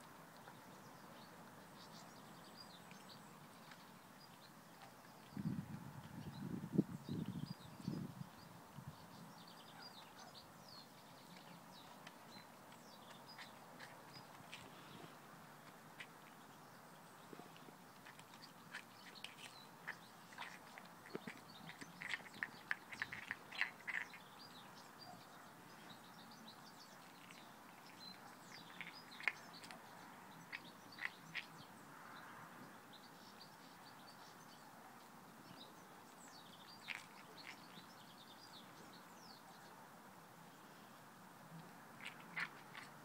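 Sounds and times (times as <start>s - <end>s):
faint birds chirping: 0.0s - 43.0s
dog crunching eggshell: 18.0s - 24.2s.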